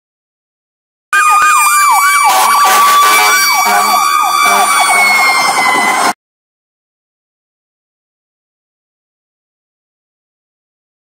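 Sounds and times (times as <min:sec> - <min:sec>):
fire engine siren yelping: 0:01.1 - 0:06.2
steady higher siren tone: 0:01.1 - 0:06.2.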